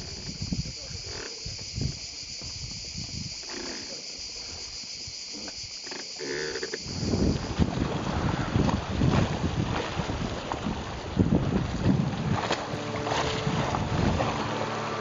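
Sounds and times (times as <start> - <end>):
wind on the microphone: 0.0 - 3.4, 6.8 - 14.6
high buzzing of insects: 0.0 - 7.4
water rushing past a boat hull: 6.8 - 15.0.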